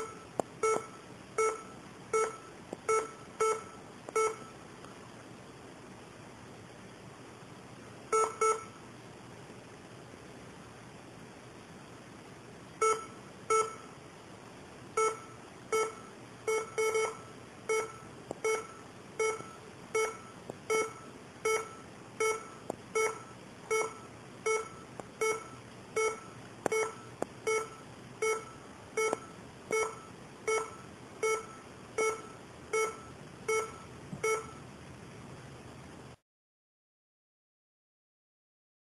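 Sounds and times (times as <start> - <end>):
laptop error beeps: 0.0 - 4.6, 8.1 - 8.8, 12.8 - 13.9, 15.0 - 34.6.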